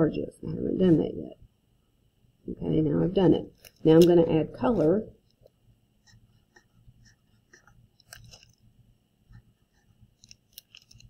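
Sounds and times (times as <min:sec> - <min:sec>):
marker drawing on paper: 0:06.0 - 0:08.5, 0:09.3 - 0:10.4.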